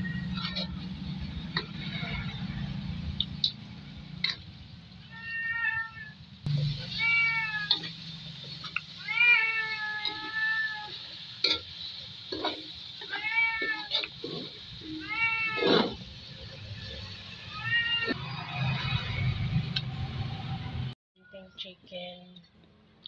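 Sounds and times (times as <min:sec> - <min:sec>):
cat meowing: 0:00.0 - 0:00.7, 0:05.1 - 0:06.2, 0:06.8 - 0:07.9, 0:09.0 - 0:11.0, 0:13.0 - 0:14.1, 0:14.8 - 0:16.0, 0:17.4 - 0:18.2
metal spatula scraping a wok: 0:00.0 - 0:03.1, 0:06.6 - 0:19.7.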